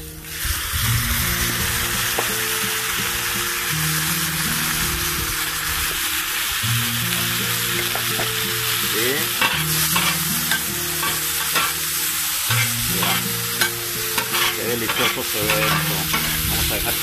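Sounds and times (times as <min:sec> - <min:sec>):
vegetables sizzling on griddle: 0:00.0 - 0:17.0
metal spatulas scraping griddle: 0:09.4 - 0:11.8, 0:12.4 - 0:17.0.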